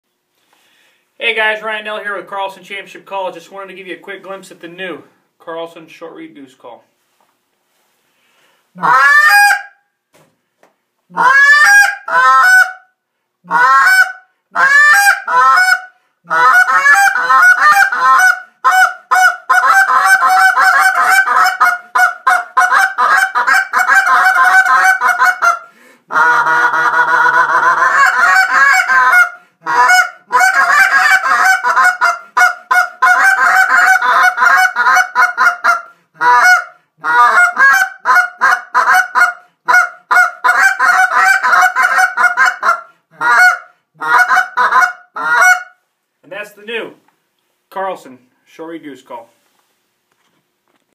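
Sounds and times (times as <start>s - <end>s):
goose call honks and clucks: 8.8s - 9.8s, 11.1s - 45.8s.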